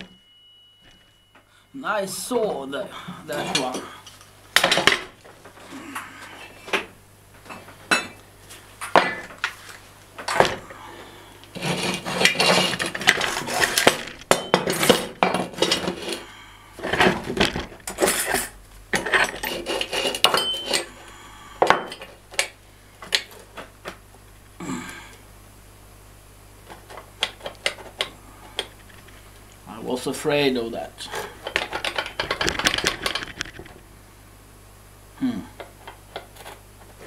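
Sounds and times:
metal scraping on workbench: 11.6 - 13.9, 17.9 - 21.0
metal tools clinking: 17.9 - 20.9.

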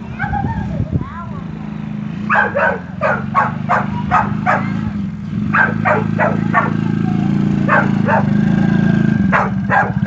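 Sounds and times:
small quad engine running: 0.0 - 10.0
dog barking: 2.3 - 4.9, 5.5 - 8.4, 9.3 - 10.0.

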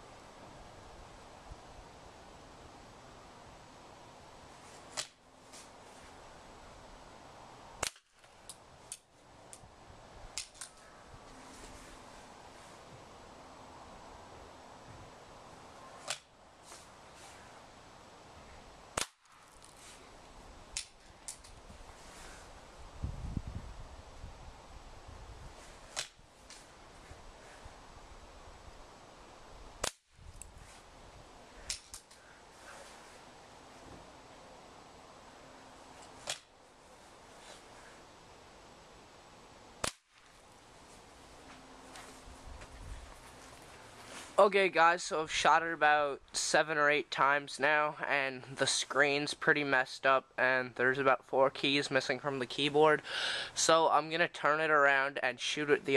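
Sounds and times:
pellet gun cracks: 5.0 - 5.2, 7.8 - 9.6, 10.4 - 10.8, 16.0 - 16.3, 19.0 - 19.4, 26.0 - 26.2, 29.8 - 30.0, 31.7 - 32.2, 36.2 - 36.5, 39.8 - 40.3.

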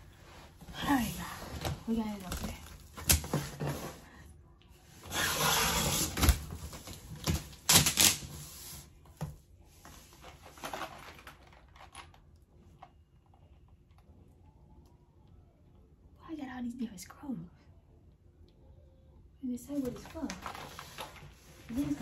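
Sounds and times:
packaging rustling: 19.9 - 22.0.

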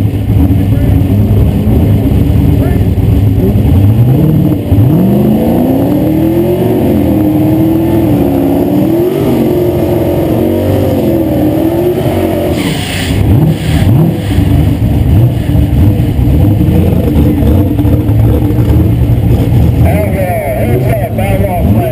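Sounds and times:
car engine revving: 0.0 - 21.9
short hissing noise: 12.5 - 14.4.

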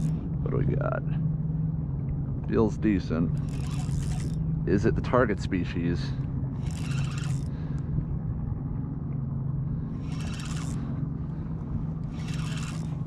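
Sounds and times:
fishing reel spinning: 0.0 - 0.2, 3.3 - 4.4, 6.5 - 7.6, 9.9 - 11.1, 11.9 - 13.0
low engine drone: 0.0 - 13.0.

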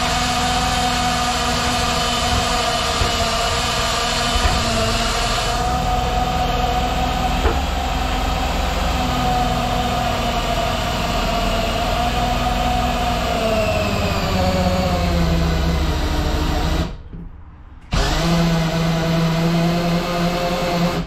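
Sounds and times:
brief knock: 7.4 - 7.7.

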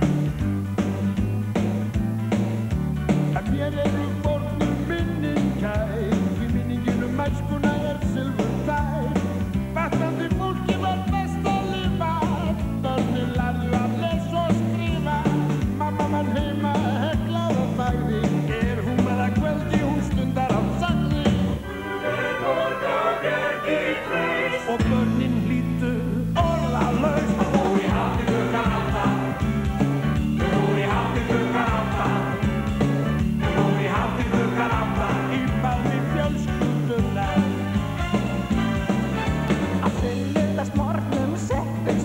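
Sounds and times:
rock and roll band playing: 0.0 - 42.0
moving bass line: 24.8 - 42.0.

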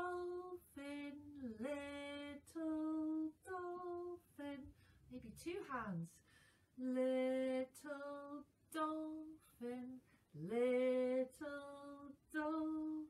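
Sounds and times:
woman singing a children's song: 0.0 - 6.2, 6.8 - 13.0.

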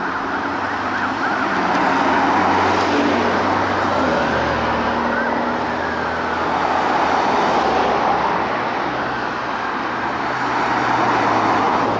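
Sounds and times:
faint siren wailing: 0.0 - 7.8
cars passing: 0.0 - 11.9.

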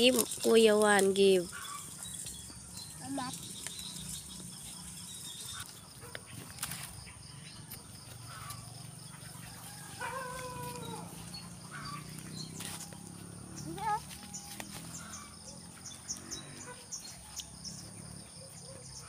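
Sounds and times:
drawn-out animal call: 0.0 - 5.8, 8.2 - 17.0.

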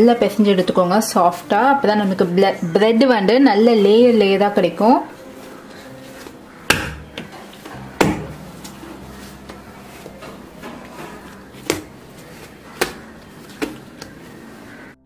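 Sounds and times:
dough kneaded on stone: 5.4 - 14.9.

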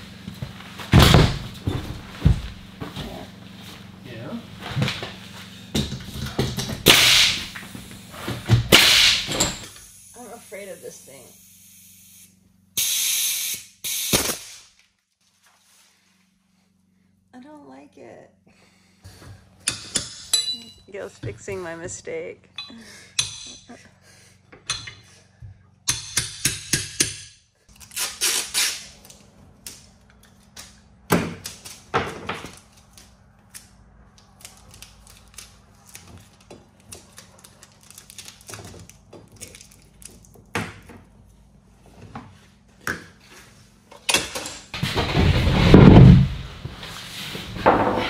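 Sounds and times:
rattling scrapes: 44.8 - 48.0.

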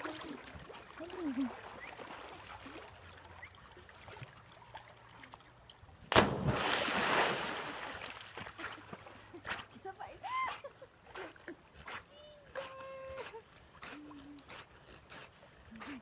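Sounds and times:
dog splashing into water: 6.1 - 9.2.

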